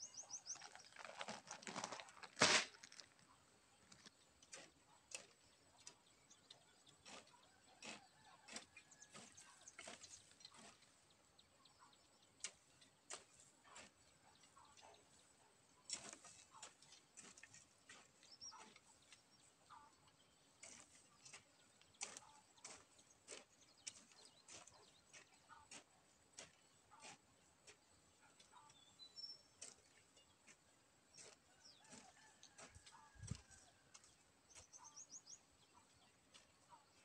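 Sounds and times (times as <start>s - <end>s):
bird chirps: 0.0s - 1.0s, 34.0s - 37.0s
hoe chopping dry soil: 0.2s - 3.2s, 4.0s - 19.6s, 20.3s - 37.0s.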